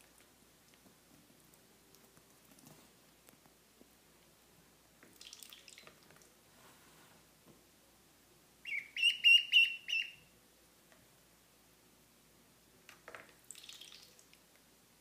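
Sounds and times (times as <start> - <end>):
duckling peeping: 8.6 - 10.3.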